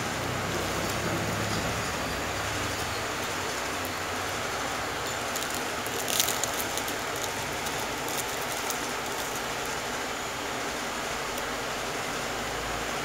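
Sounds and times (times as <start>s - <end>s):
steady hiss: 0.0s - 13.0s
plastic sleeve crinkling: 3.2s - 10.0s.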